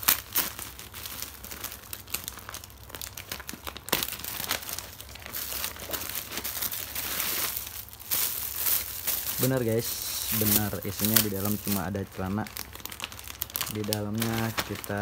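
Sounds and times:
plastic bag crinkling and tearing: 0.0s - 15.0s.

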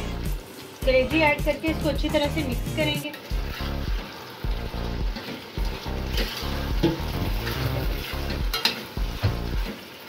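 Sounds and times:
background music with a beat: 0.0s - 9.8s
light frying sizzle: 0.0s - 10.0s
spatula stirring in a pan: 3.0s - 10.0s.

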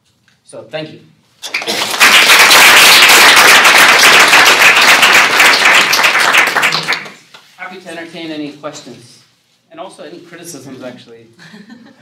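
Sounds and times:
audience applauding: 1.4s - 7.3s.

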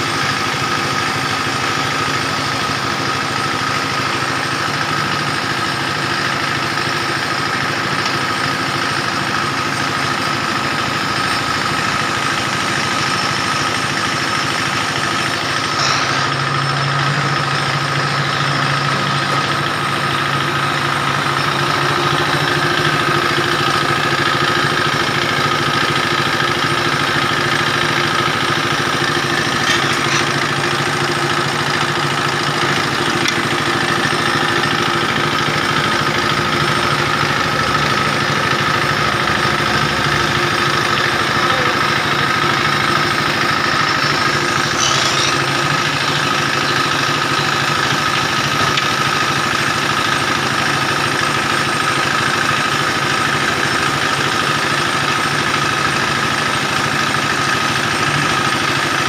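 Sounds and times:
diesel engine running: 0.0s - 59.0s
cutter heads whirring: 14.8s - 24.6s, 27.1s - 49.4s.

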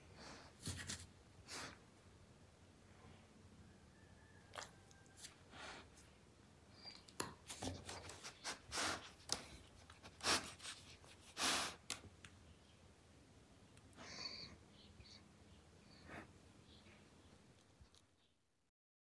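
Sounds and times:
dog sniffing and snorting: 7.4s - 12.0s.

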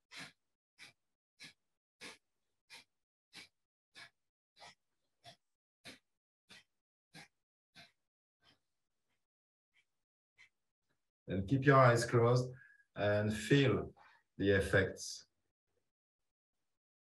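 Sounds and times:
sharp nasal exhalations: 1.4s - 4.1s.

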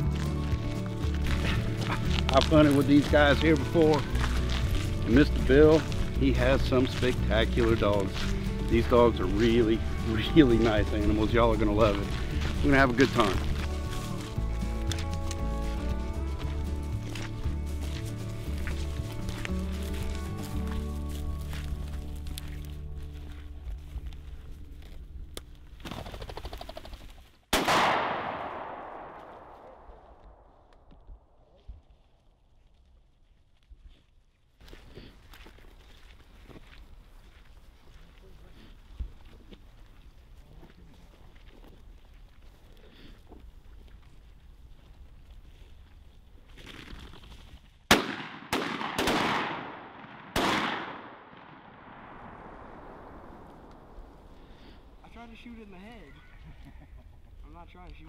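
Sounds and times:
shotgun blast echoing: 27.5s - 30.5s, 47.9s - 53.9s.

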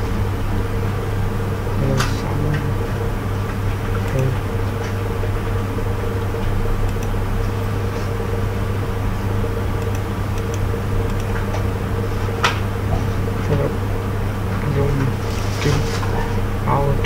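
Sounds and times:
low hum with hiss: 0.0s - 17.0s
faint clicks: 6.8s - 7.2s, 9.8s - 11.4s.

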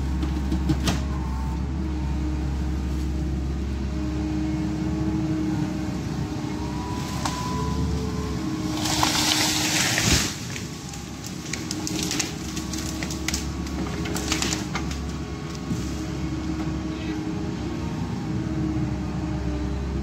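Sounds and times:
excavator engine and hydraulics: 0.0s - 20.0s
tree swishing through branches: 8.6s - 13.1s
branches cracking and snapping: 8.6s - 16.0s.

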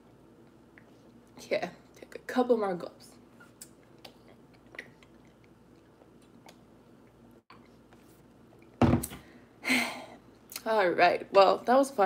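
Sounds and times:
loud thump: 8.8s - 9.2s.

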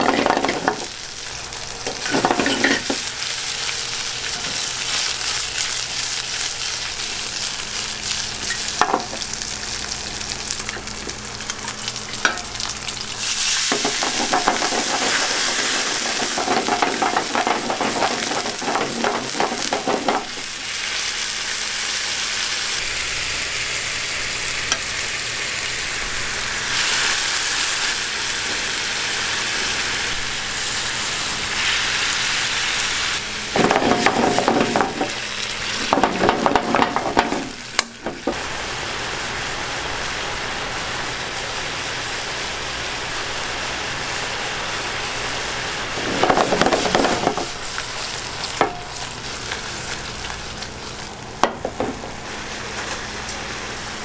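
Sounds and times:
stirring and pan clatter: 0.0s - 0.9s, 1.8s - 3.1s, 13.6s - 20.6s, 33.6s - 35.2s, 35.8s - 38.4s, 46.0s - 47.7s
sauce sizzling and bubbling: 0.0s - 54.0s.

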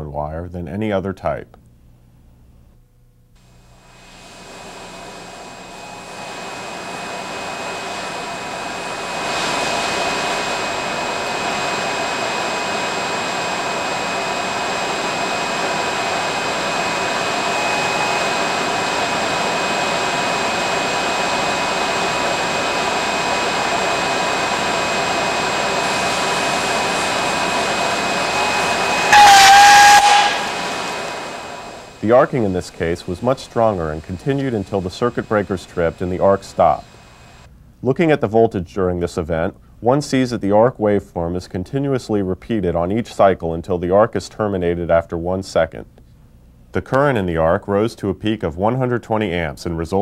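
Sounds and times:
electrical arc flashing: 3.4s - 37.5s
electrical hiss from wet wire: 3.4s - 37.5s.

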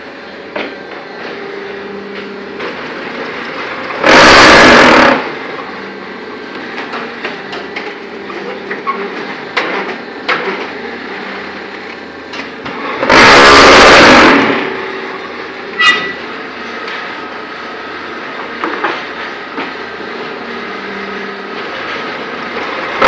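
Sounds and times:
motor and hydraulics humming: 0.0s - 23.0s
mould vibrators rattling: 3.7s - 5.4s.

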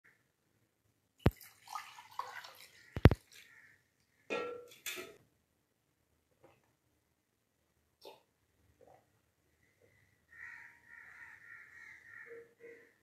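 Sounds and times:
water splashing and trickling: 1.2s - 3.6s.

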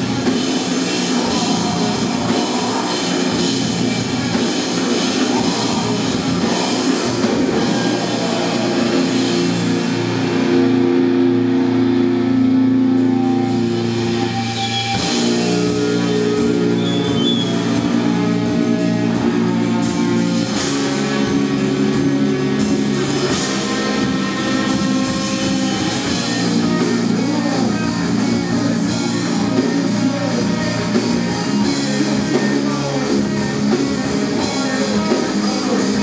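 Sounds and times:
distorted electric guitars: 0.0s - 36.0s
drum kit: 0.0s - 36.0s.

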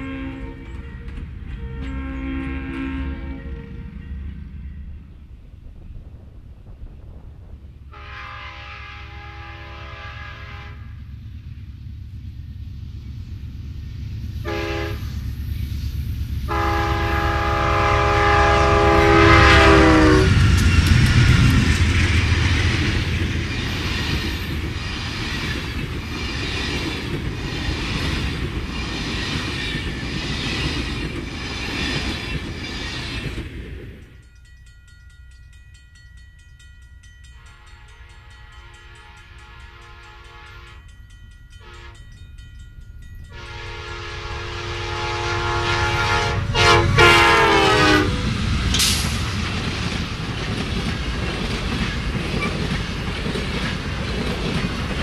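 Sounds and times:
locomotive horn blasts: 0.0s - 4.0s, 7.9s - 11.0s, 14.4s - 15.1s, 16.5s - 20.4s, 37.4s - 40.9s, 41.6s - 42.0s, 43.3s - 48.3s
distant train horn: 0.0s - 5.0s, 7.9s - 11.1s, 14.4s - 15.3s, 16.4s - 21.4s, 37.4s - 42.2s, 43.2s - 48.4s
train cars clickety-clack: 0.0s - 5.8s, 12.9s - 35.1s, 37.2s - 55.0s.

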